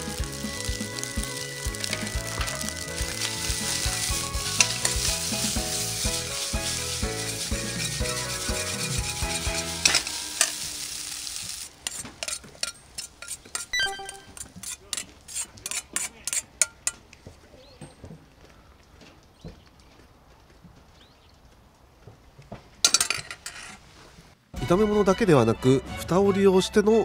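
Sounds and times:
background music: 0:00.0 - 0:11.0, 0:13.8 - 0:14.4, 0:24.6 - 0:27.0
rice sizzling in a wok: 0:00.0 - 0:13.7.

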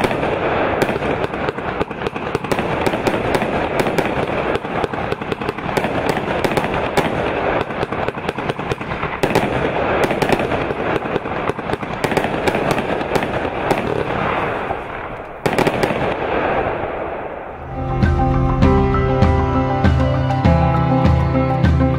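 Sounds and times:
crackling pops: 0:00.0 - 0:17.6.

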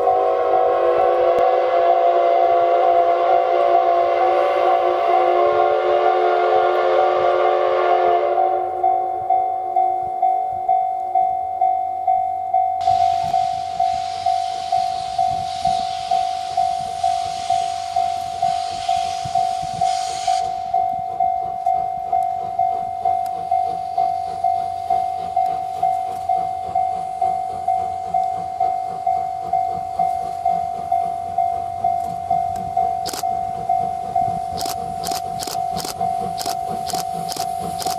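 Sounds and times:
steam locomotive hissing: 0:00.0 - 0:09.4, 0:12.8 - 0:37.9
level-crossing bell clanging: 0:08.5 - 0:37.4.

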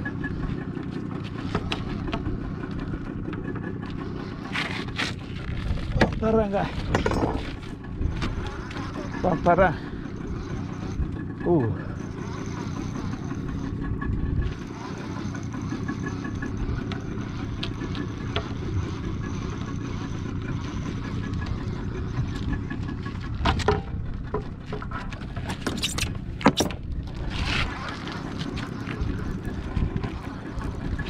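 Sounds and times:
boat engine running: 0:00.0 - 0:31.0
sharp knocks and clicks: 0:23.4 - 0:26.8.

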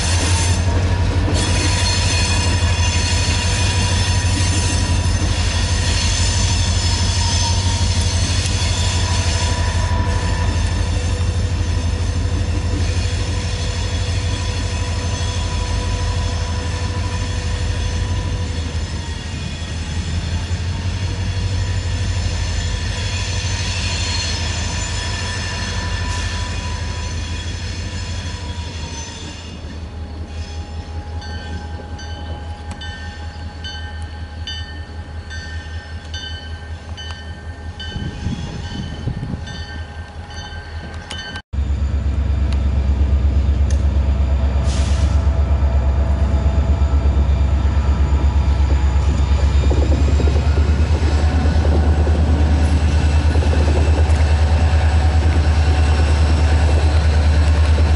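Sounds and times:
diesel locomotive engine rumble: 0:00.0 - 0:57.9
wheel flanges squealing: 0:01.3 - 0:36.0.

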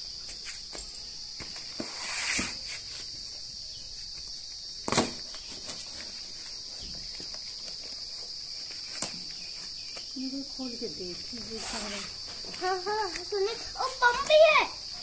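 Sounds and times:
crickets chirring: 0:00.0 - 0:15.0
short rustle: 0:11.2 - 0:14.4.

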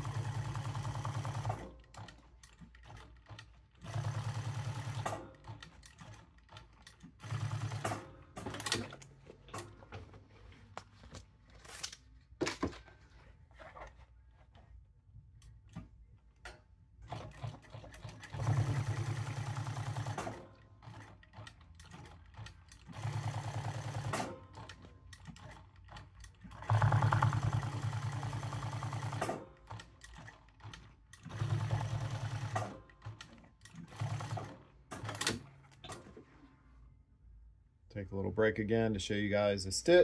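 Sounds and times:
sewing machine needle rattle: 0:17.1 - 0:36.1.

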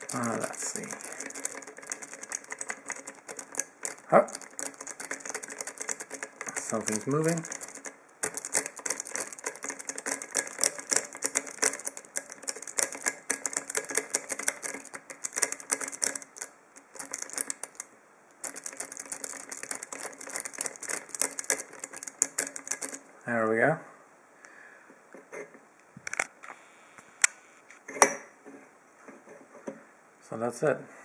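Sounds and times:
lock pick clicking and scraping: 0:00.0 - 0:23.1.

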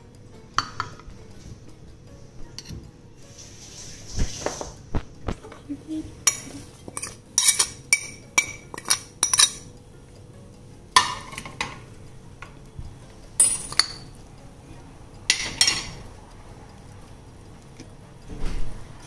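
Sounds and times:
utensils clinking on glass bowl: 0:06.2 - 0:09.6, 0:11.0 - 0:11.8, 0:13.4 - 0:14.1, 0:15.3 - 0:16.0.

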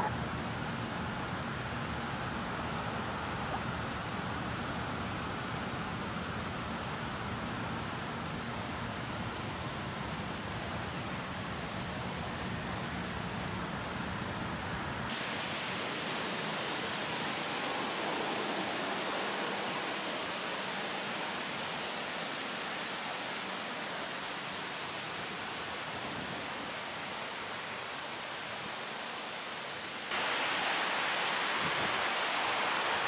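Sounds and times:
wind noise: 0:25.1 - 0:27.3, 0:30.1 - 0:33.0.

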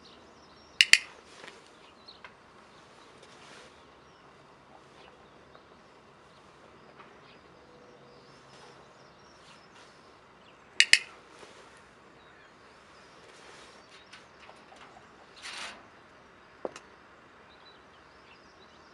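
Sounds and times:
faint birdsong: 0:00.0 - 0:18.9
training clicker double click: 0:00.8 - 0:01.1, 0:10.8 - 0:11.1.

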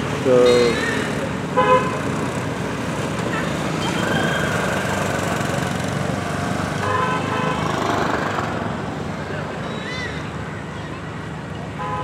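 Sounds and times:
road traffic engines: 0:00.0 - 0:12.0
vehicle horn: 0:01.6 - 0:02.1, 0:06.8 - 0:07.7, 0:11.8 - 0:12.0.

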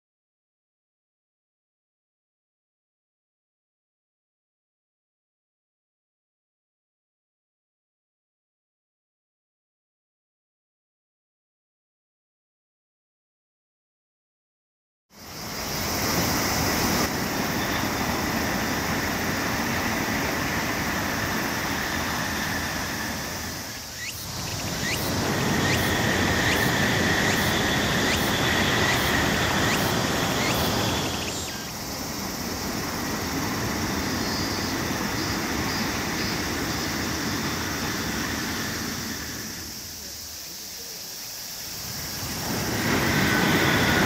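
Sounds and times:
distant train rushing past: 0:15.2 - 0:44.0
high insect buzz: 0:15.2 - 0:44.0.

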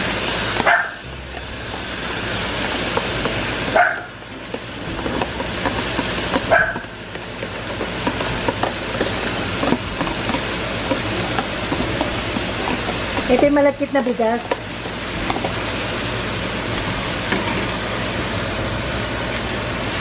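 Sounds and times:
food sizzling in a frying pan: 0:00.0 - 0:20.0.

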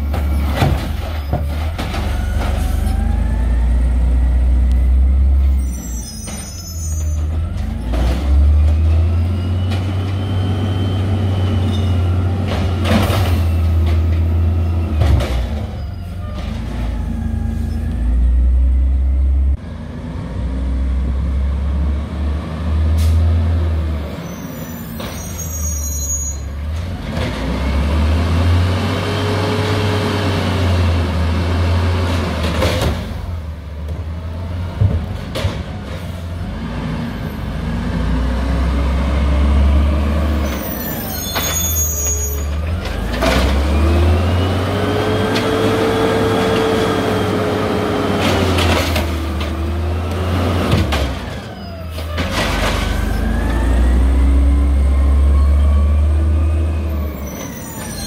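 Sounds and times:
truck engine revving: 0:36.4 - 0:40.9, 0:42.5 - 0:57.8.

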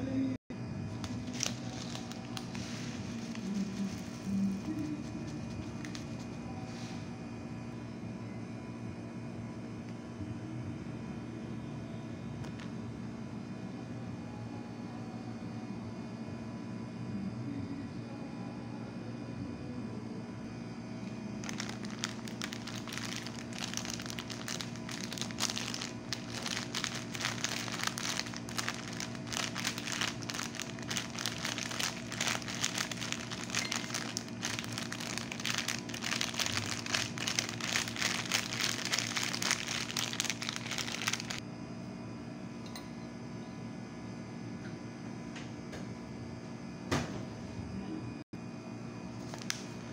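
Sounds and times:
steady low hum: 0:00.0 - 0:49.9
plastic sachet crinkling: 0:00.9 - 0:06.4, 0:21.4 - 0:41.4, 0:49.2 - 0:49.7.

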